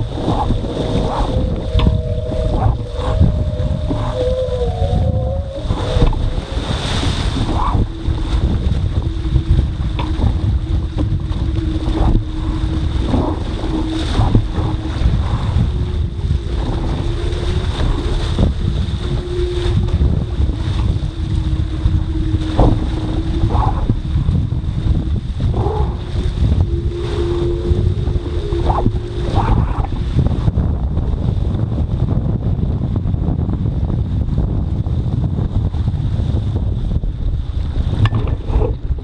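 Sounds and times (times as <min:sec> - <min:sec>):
steady hum: 0:00.0 - 0:32.4
water splashing against hull: 0:00.0 - 0:39.0
wind buffeting microphone: 0:00.0 - 0:39.0.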